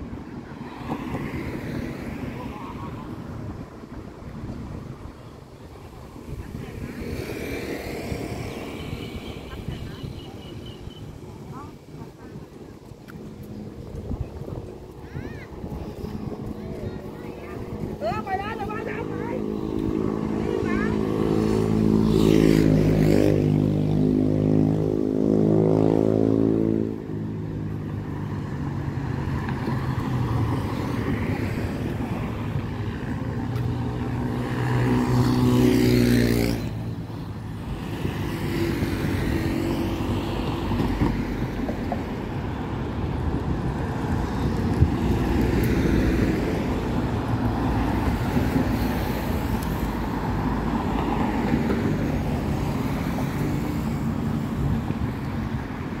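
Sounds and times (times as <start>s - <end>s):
steady traffic hum: 0.0s - 56.0s
vehicle engine passing: 6.2s - 43.0s.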